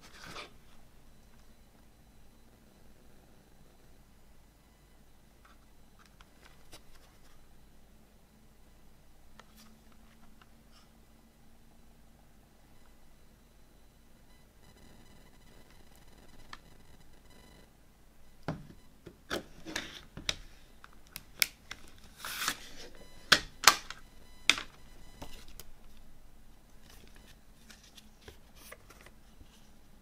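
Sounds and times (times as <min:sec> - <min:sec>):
paper booklet rustling: 0:26.8 - 0:29.7.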